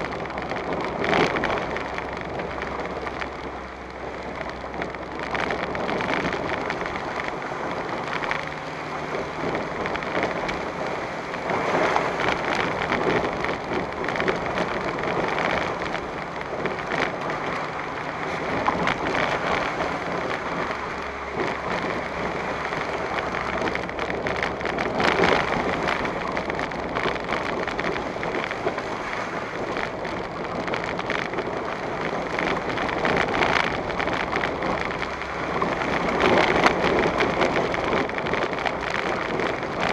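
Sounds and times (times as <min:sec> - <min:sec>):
road and tyre noise: 0:00.0 - 0:39.9
vehicle knocks and rattles: 0:00.0 - 0:39.9.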